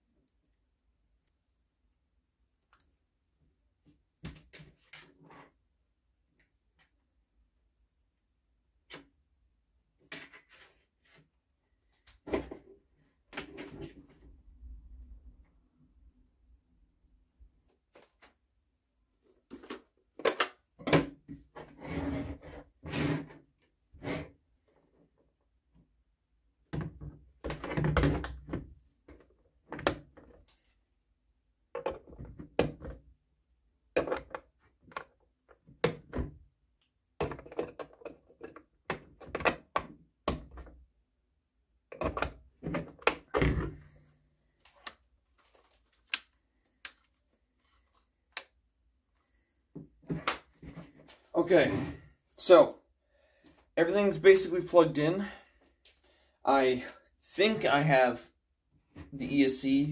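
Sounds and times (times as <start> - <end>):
wire connectors plugging together: 44.6 - 47.2, 48.3 - 48.6.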